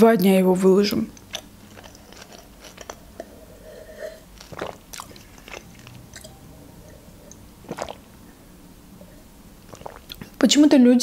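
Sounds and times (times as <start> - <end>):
person gulping a drink: 1.2 - 3.4, 4.2 - 8.4, 9.0 - 10.4
wet mouth clicks: 4.4 - 6.4, 7.3 - 8.1, 9.7 - 10.4.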